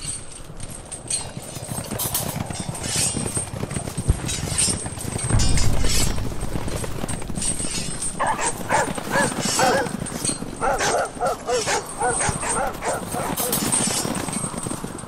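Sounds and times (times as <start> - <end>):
footsteps on dirt trail: 0.7 - 14.3
wind rumbling on microphone: 4.0 - 10.8.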